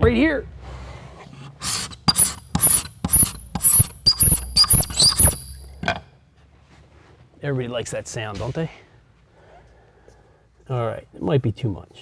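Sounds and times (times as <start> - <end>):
hand scraper scraping wood floor: 1.5 - 5.6.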